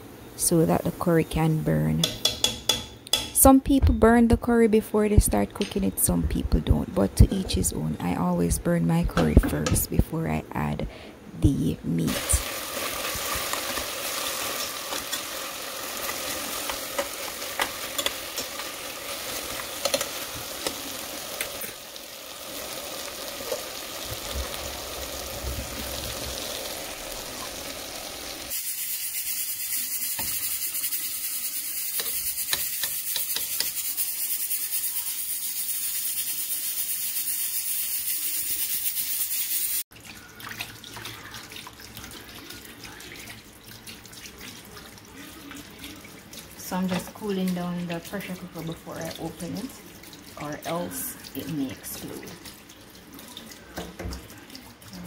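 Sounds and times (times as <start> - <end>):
meat sizzling in a pot: 12.0 - 54.7
tap water running over pot: 12.1 - 37.2, 38.2 - 55.0.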